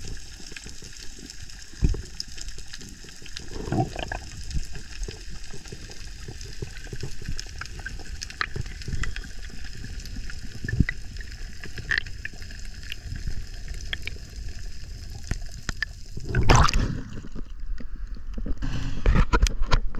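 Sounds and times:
water splashing: 0:00.0 - 0:09.6, 0:16.2 - 0:17.5
water churning at surface: 0:00.0 - 0:12.4, 0:13.0 - 0:17.6
underwater rush of water: 0:00.0 - 0:18.2
sharp clicks and crackles: 0:00.0 - 0:19.9.

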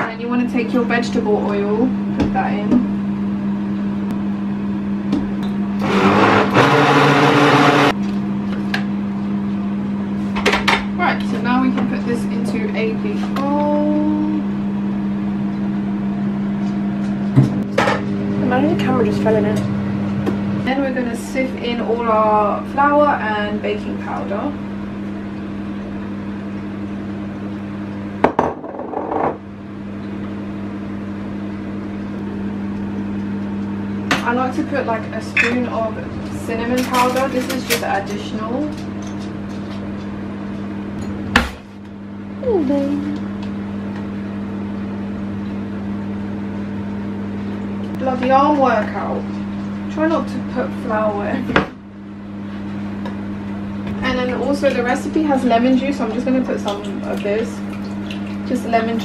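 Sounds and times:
steady low hum: 0:00.0 - 0:59.0
blender running: 0:05.4 - 0:08.0.

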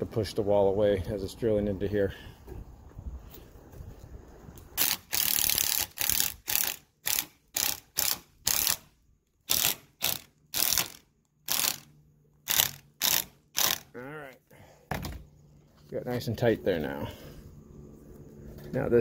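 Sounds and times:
cordless drill driving screw: 0:04.8 - 0:08.8, 0:09.5 - 0:11.9, 0:12.5 - 0:13.8.

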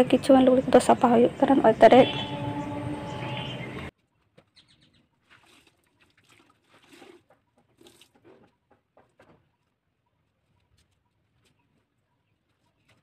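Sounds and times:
soft rustles and ticks: 0:07.6 - 0:13.0.

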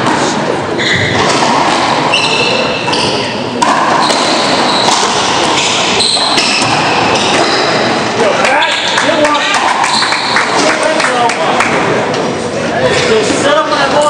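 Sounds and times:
hall noise and voices: 0:00.0 - 0:14.0
sneakers squeaking on floor: 0:00.7 - 0:10.6.

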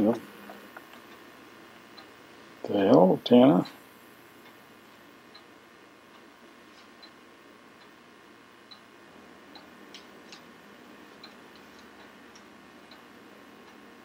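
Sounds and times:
low room hiss: 0:00.0 - 0:14.0
wall clock ticking: 0:08.7 - 0:08.9, 0:09.5 - 0:14.0.

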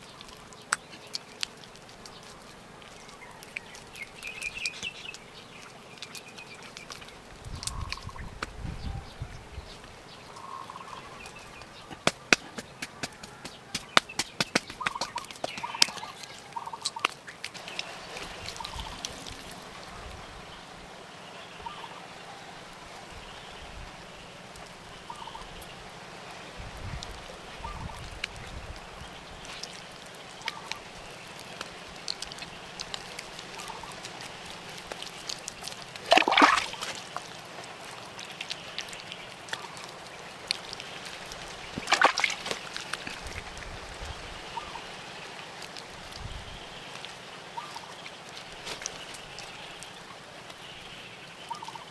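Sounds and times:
birds calling: 0:00.0 - 0:25.8, 0:27.6 - 0:51.9
hands slapping wet clay: 0:11.8 - 0:19.1, 0:34.9 - 0:37.3, 0:41.7 - 0:43.3.

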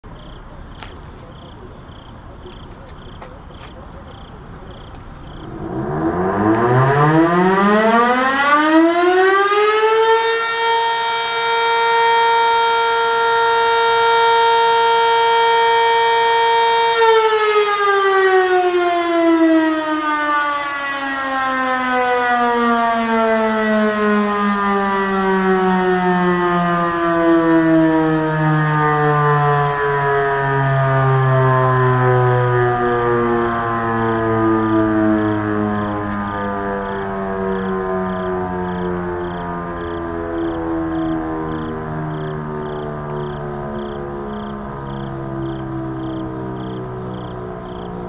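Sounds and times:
siren winding up and down: 0:05.2 - 0:48.0.

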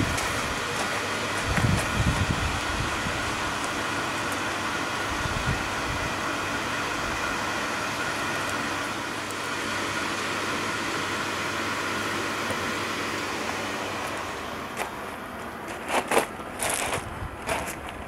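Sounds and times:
circulator pump humming: 0:00.0 - 0:18.0
wind rumble on microphone: 0:01.4 - 0:03.6, 0:05.1 - 0:06.2, 0:16.8 - 0:18.0.

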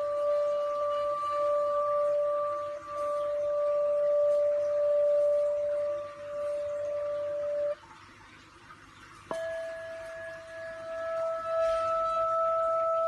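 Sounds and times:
crystal singing bowl ringing: 0:00.0 - 0:07.8, 0:09.3 - 0:13.0.

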